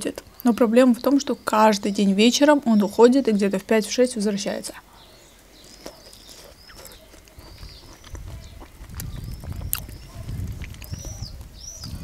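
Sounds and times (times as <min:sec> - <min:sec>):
small birds chirping: 0:00.0 - 0:12.0
wet chewing: 0:05.4 - 0:12.0.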